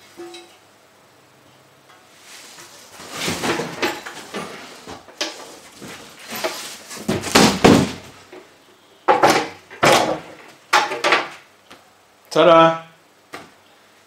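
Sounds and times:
cardboard box rustling and scraping: 2.2s - 7.9s.

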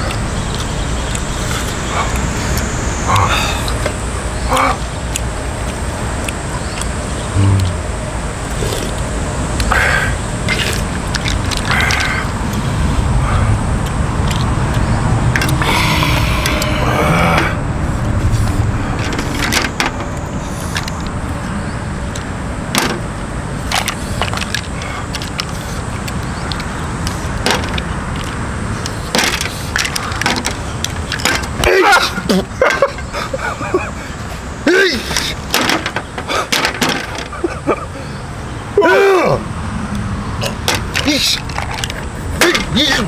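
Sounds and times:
steady low rumble: 0.0s - 31.7s.

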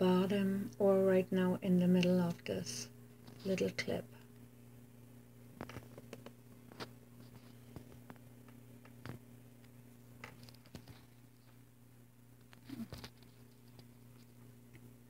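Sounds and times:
steady low hum: 0.0s - 15.0s
faint clicks and rustles: 5.5s - 11.7s, 12.3s - 14.9s.

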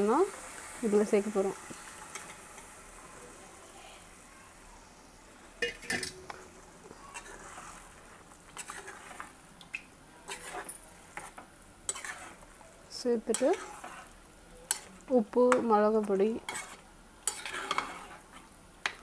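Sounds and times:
faint sizzle: 0.0s - 19.0s
metal spoon clinking on a pot: 5.6s - 6.2s, 14.6s - 14.9s, 16.5s - 17.9s.

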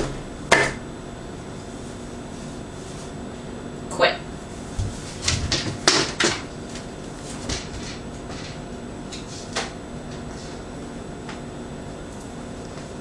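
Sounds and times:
low room hum: 0.0s - 13.0s
footstep knocks: 4.7s - 6.4s.

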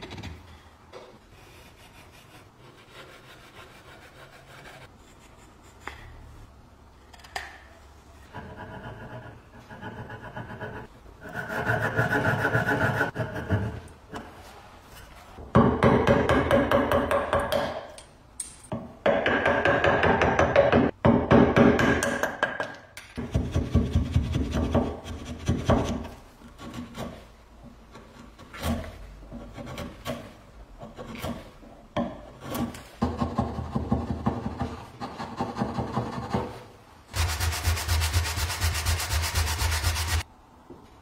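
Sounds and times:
saw cutting wood: 37.2s - 40.2s.

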